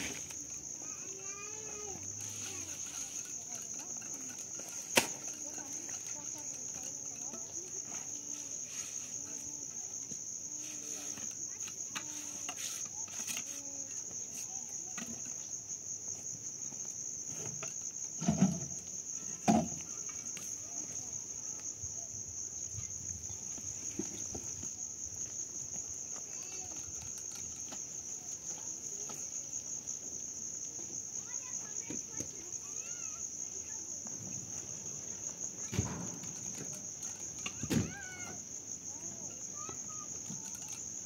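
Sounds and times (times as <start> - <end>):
insects chirping: 0.0 - 41.0.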